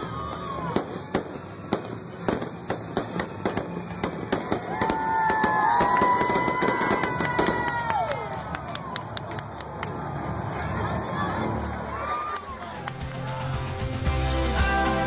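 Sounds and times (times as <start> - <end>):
fireworks bangs and crackling: 0.0 - 11.5.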